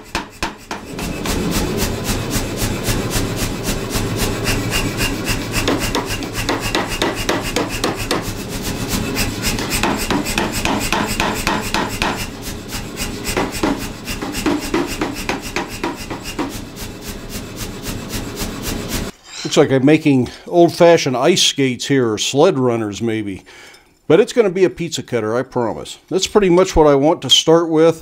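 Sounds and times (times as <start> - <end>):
power hammer striking hot steel: 0.0 - 17.2.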